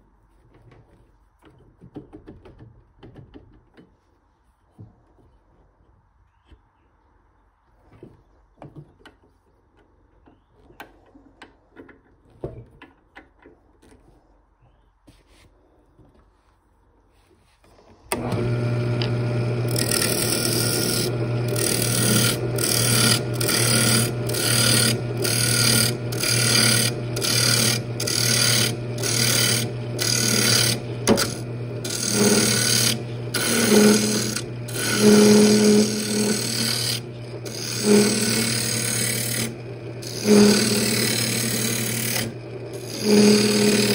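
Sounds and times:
lathe motor humming: 0:18.1 - 0:43.9
turning tool cutting wood: 0:18.1 - 0:43.9.

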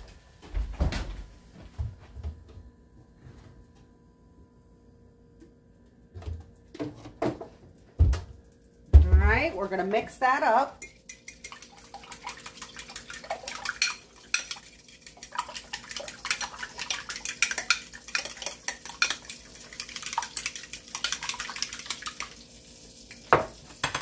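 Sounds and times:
fork clinking against glass: 0:10.8 - 0:11.7.

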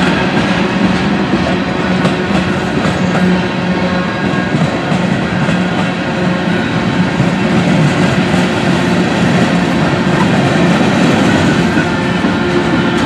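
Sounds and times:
steel wheels rumbling on rails: 0:00.0 - 0:13.0.

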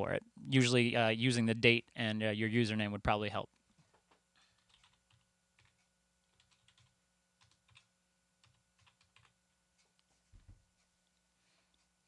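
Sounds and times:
keyboard typing: 0:03.9 - 0:10.0.

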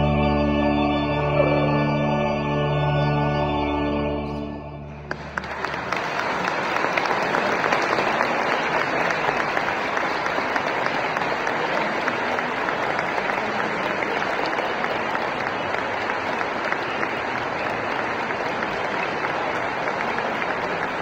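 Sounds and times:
church music chord: 0:00.0 - 0:05.5
congregation applauding: 0:05.0 - 0:21.0.

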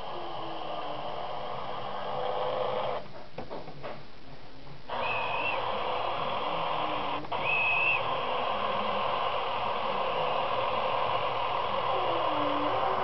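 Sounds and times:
diesel engine through small speaker: 0:05.4 - 0:13.0.

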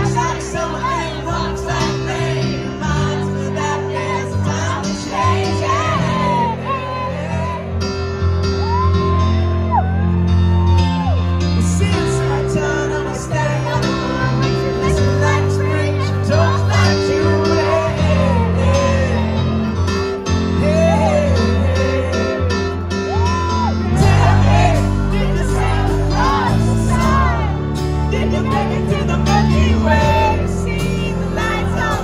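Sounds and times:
man singing lead vocal: 0:00.0 - 0:08.1, 0:11.4 - 0:32.0
live pop rock band: 0:00.0 - 0:32.0
audience whooping and shouting: 0:05.2 - 0:11.5, 0:22.9 - 0:27.7.

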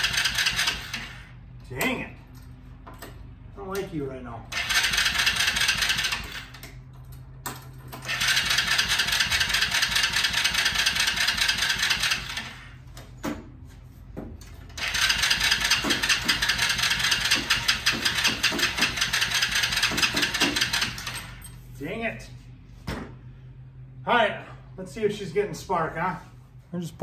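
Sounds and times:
electric starter cranking engine: 0:00.0 - 0:01.4, 0:04.5 - 0:06.8, 0:07.9 - 0:12.9, 0:14.7 - 0:21.4.

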